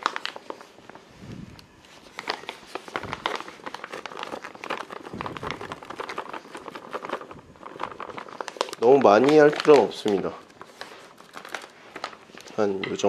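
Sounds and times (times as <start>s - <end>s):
paper bag crinkling: 0.0s - 12.8s
powder pouring into a bowl: 2.3s - 11.1s.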